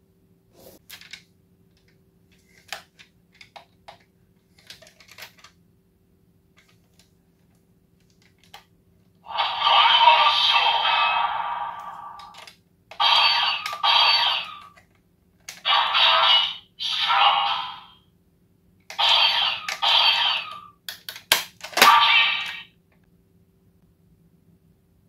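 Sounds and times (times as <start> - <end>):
electronic toy sound effect: 9.3 - 12.4, 13.0 - 14.8, 15.6 - 18.0, 19.0 - 20.7, 21.8 - 22.7
plastic toy clicks and snaps: 11.8 - 16.2, 18.9 - 22.6.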